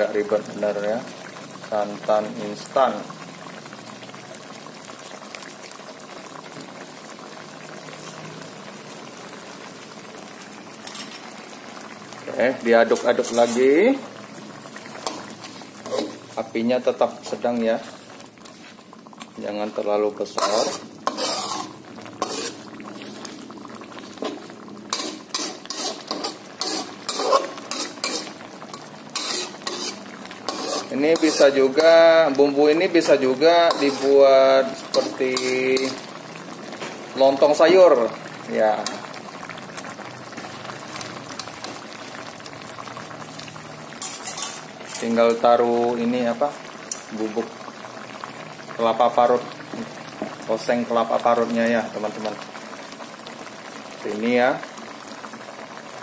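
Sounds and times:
curry simmering in a wok: 0.0 - 56.0
metal spatula scraping wok: 10.8 - 11.3, 12.9 - 13.8, 15.0 - 16.4, 20.3 - 23.3, 24.2 - 32.3, 33.1 - 36.1, 44.0 - 45.4.

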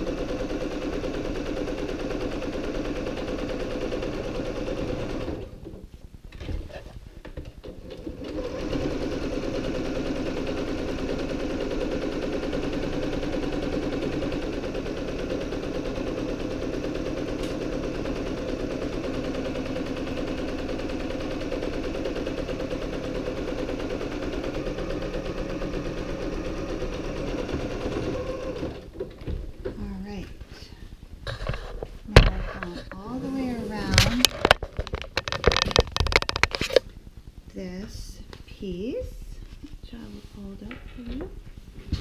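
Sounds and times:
electric sewing machine running: 0.0 - 5.6, 8.0 - 29.0.

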